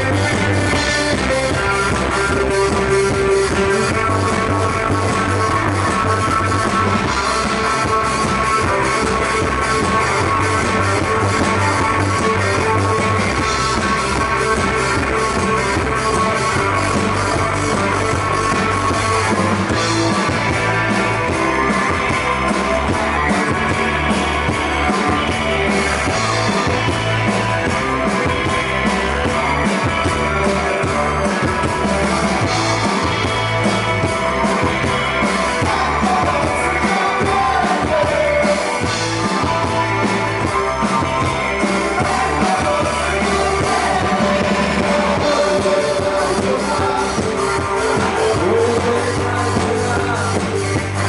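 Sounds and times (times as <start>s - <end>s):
drum kit beat: 0.0s - 51.0s
electric guitars: 0.0s - 51.0s.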